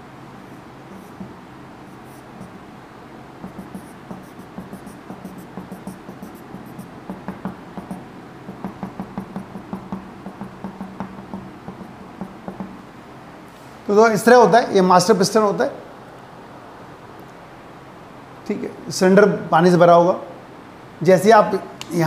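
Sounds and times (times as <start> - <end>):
marker squeaking on whiteboard: 0.4 - 2.6, 3.4 - 12.8.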